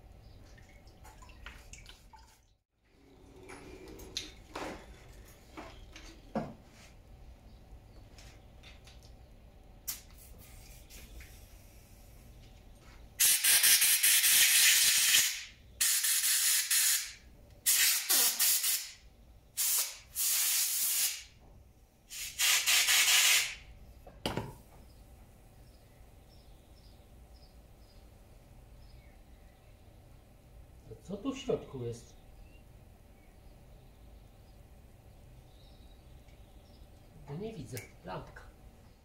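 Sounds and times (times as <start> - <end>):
compressed air blow gun hissing: 19.6 - 21.3, 22.1 - 23.6.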